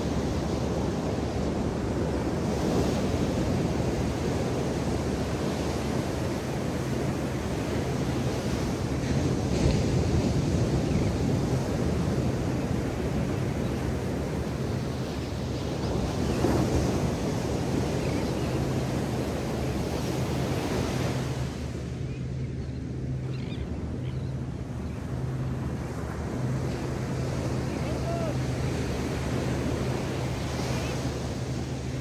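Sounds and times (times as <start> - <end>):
surf breaking on a beach: 0.0 - 21.9, 24.5 - 32.0.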